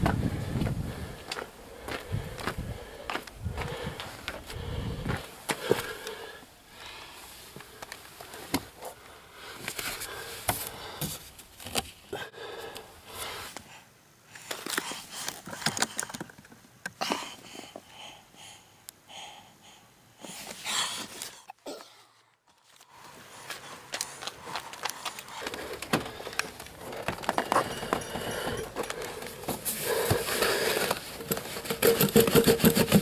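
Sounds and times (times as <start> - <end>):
rustling and scraping: 7.2 - 12.1, 22.6 - 33.0.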